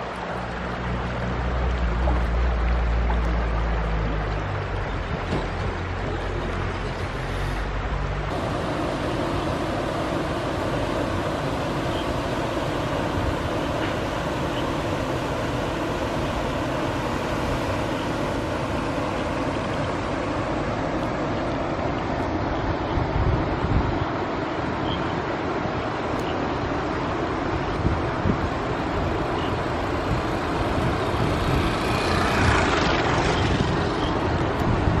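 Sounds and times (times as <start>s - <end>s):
river rushing over rocks: 0.0s - 35.0s
wind rumbling on microphone: 0.0s - 35.0s
vehicle passing: 30.1s - 34.4s.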